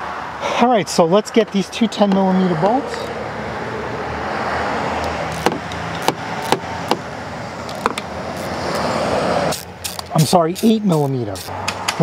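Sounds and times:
road traffic rumble: 0:00.0 - 0:12.0
socket wrench clicking: 0:05.0 - 0:06.6, 0:07.7 - 0:08.8, 0:09.5 - 0:12.0.

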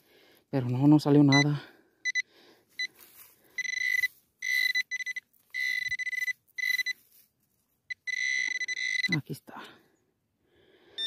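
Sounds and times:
metal detector target tone: 0:01.3 - 0:02.2, 0:03.6 - 0:07.0, 0:07.9 - 0:09.3.

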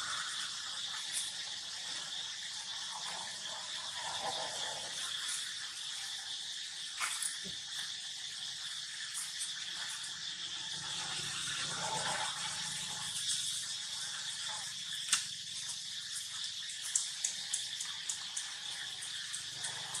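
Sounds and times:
insects chirring: 0:00.0 - 0:20.0
small high ticks: 0:14.5 - 0:20.0.

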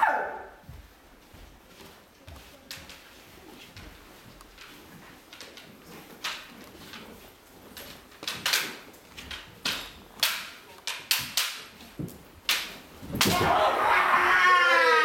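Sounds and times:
sharp wooden knocks and clacks: 0:04.4 - 0:13.6.

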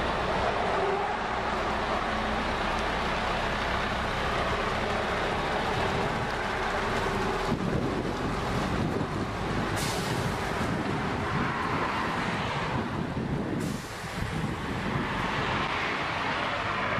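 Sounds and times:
road traffic rumble and hiss: 0:00.0 - 0:16.9.

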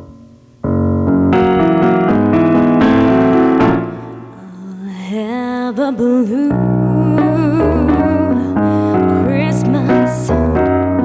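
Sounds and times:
electric keyboard chords: 0:00.0 - 0:04.6, 0:06.4 - 0:11.0.

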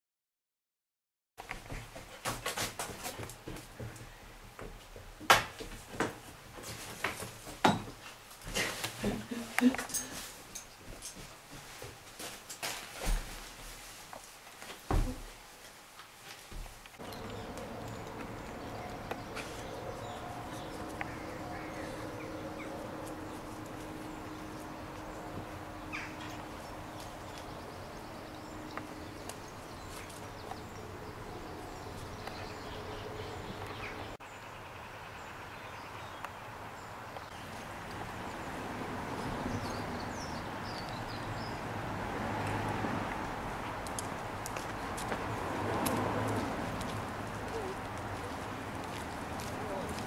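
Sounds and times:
birds chirping: 0:17.0 - 0:45.4.

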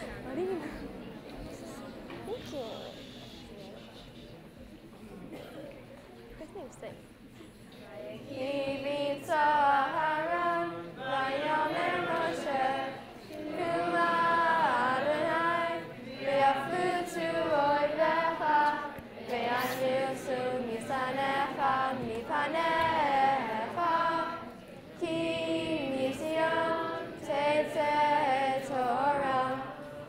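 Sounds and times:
children singing a prayer: 0:08.1 - 0:30.0.

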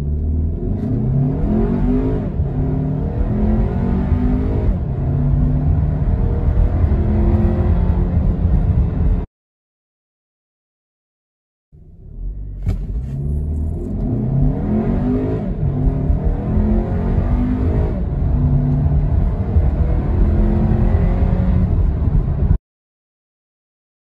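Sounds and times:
car engine accelerating: 0:00.0 - 0:09.3, 0:11.8 - 0:22.6.

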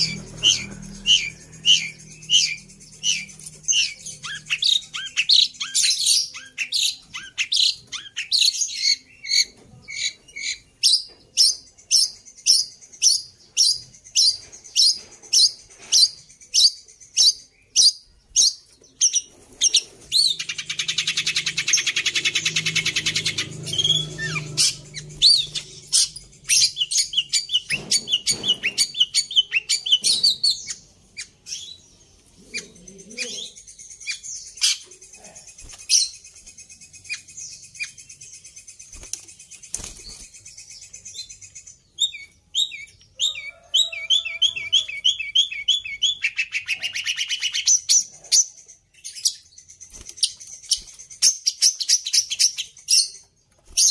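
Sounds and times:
shrike singing: 0:00.0 - 0:09.4, 0:19.2 - 0:47.7
harsh rapid bird chatter: 0:00.0 - 0:53.9.

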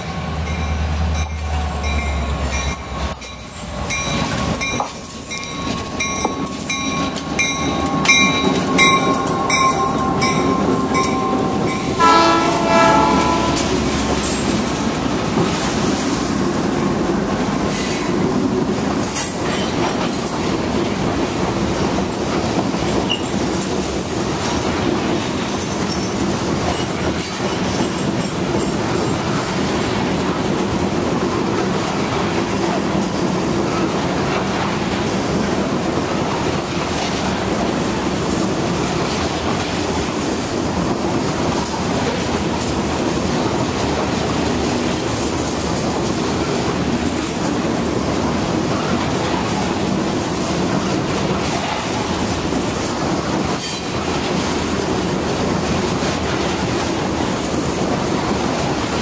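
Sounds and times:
train bell ringing: 0:00.0 - 0:14.7, 0:25.2 - 0:29.4
rail cars rolling wheel noise: 0:00.0 - 0:59.0
train horn: 0:09.0 - 0:14.0.

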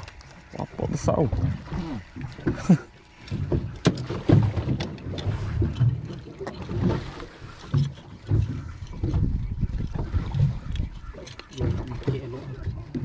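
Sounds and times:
water slapping boat hull: 0:00.0 - 0:13.0
wind on microphone: 0:08.2 - 0:13.0.

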